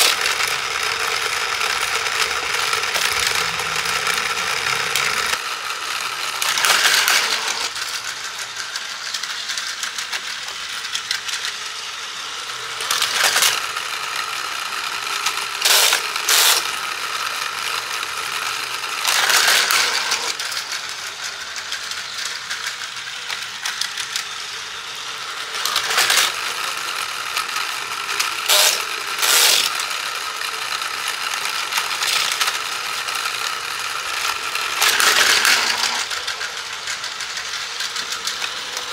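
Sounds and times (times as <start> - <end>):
plastic toy clacking: 0.0 - 5.4, 6.3 - 11.6, 18.9 - 24.4, 25.5 - 38.9
toy gears whirring: 0.0 - 38.9.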